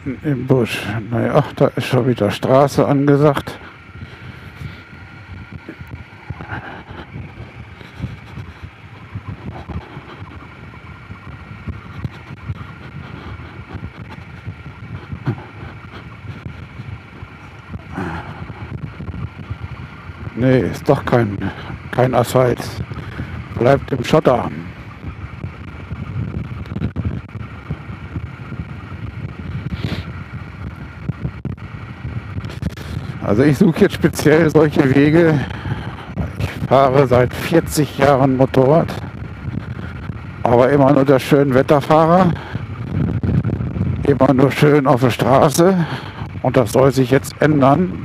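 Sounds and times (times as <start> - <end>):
motorcycle engine running: 0.0 - 48.0
wind on microphone: 3.5 - 22.0, 22.6 - 34.1, 38.7 - 41.2, 41.8 - 44.6.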